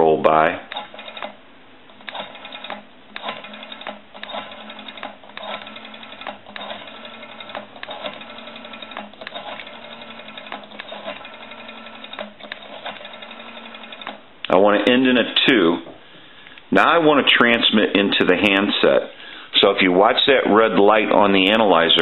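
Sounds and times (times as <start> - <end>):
rotary telephone dial clicking and whirring: 0.7 - 14.2.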